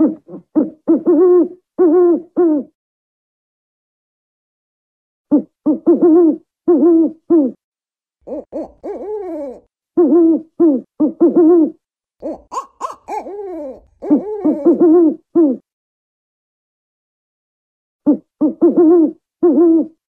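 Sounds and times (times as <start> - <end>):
owl hooting: 0.0 - 2.8, 5.3 - 7.6, 8.3 - 15.6, 18.1 - 20.0.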